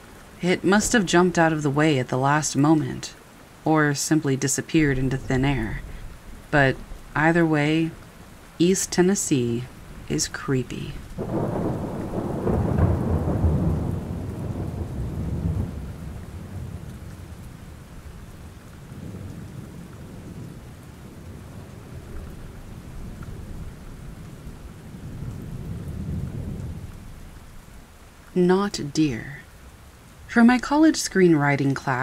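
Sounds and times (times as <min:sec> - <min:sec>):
steady rain: 0:00.0 - 0:32.0
thunder rolling: 0:04.8 - 0:07.8, 0:09.7 - 0:27.7.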